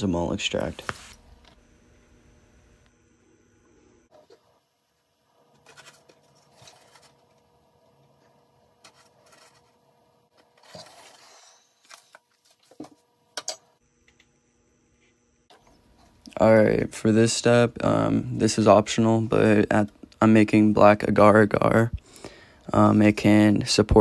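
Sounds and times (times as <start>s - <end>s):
powder rustling: 5.5s - 7.4s.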